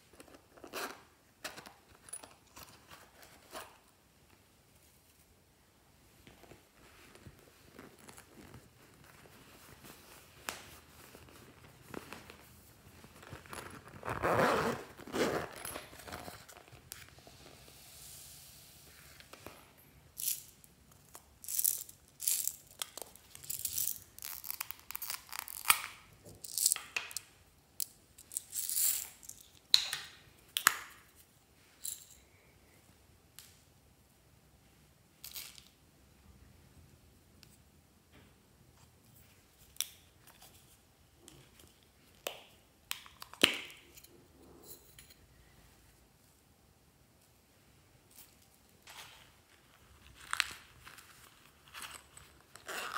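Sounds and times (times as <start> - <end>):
small containers clicking open: 42.2 - 43.8.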